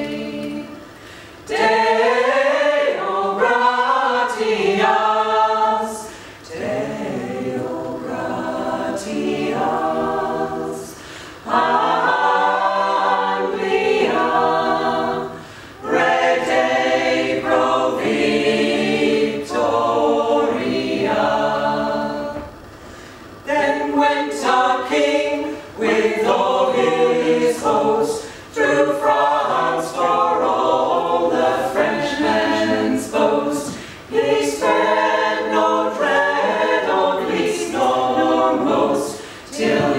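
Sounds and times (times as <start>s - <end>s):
a cappella choir singing: 0.0s - 39.9s
singers breathing: 0.9s - 1.4s, 6.0s - 6.4s, 10.9s - 11.5s, 15.4s - 15.8s, 22.7s - 23.4s, 28.2s - 28.5s, 33.7s - 34.1s, 39.1s - 39.6s.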